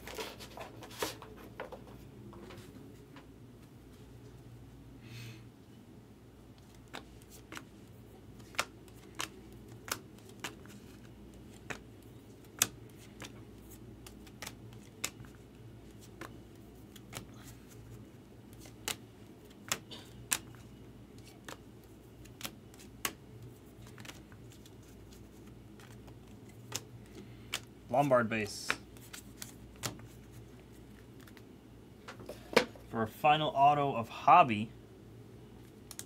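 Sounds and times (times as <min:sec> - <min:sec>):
cards flipping with sharp clicks: 0:06.6 - 0:23.2, 0:23.8 - 0:31.4, 0:35.6 - 0:36.0.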